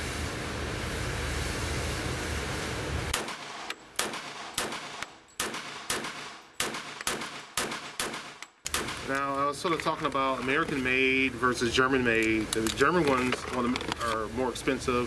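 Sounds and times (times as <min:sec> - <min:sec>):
pistol shots indoors: 0:03.2 - 0:09.0.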